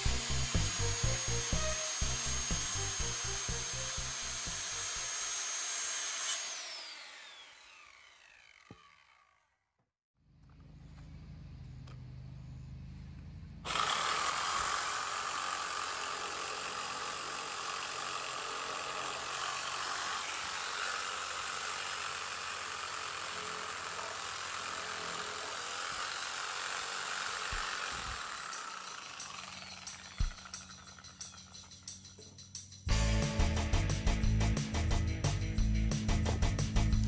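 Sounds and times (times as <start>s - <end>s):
power saw cutting: 0.0s - 9.5s, 13.6s - 31.9s.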